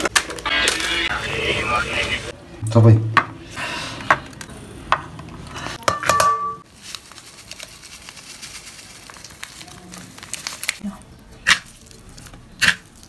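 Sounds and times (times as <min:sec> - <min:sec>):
dishware clinking: 0:05.8 - 0:06.6
packet crinkling: 0:06.7 - 0:13.0.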